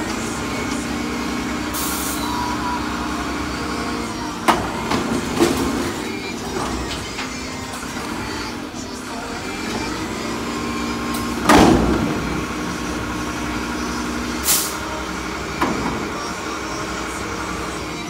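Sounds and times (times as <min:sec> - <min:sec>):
diesel truck engine revving: 0:00.0 - 0:18.0
loud metallic clunk: 0:11.2 - 0:12.6
air hiss: 0:14.4 - 0:14.9.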